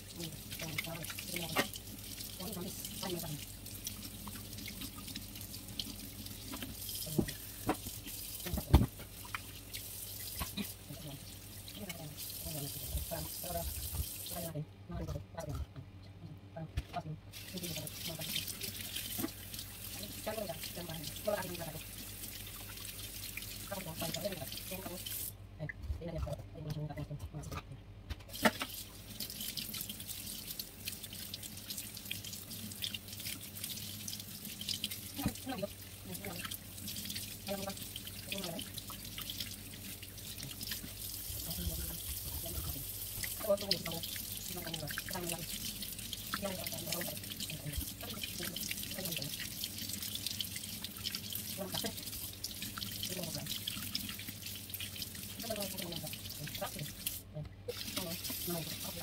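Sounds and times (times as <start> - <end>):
hands washing under water: 0.1 - 14.5, 28.3 - 59.0.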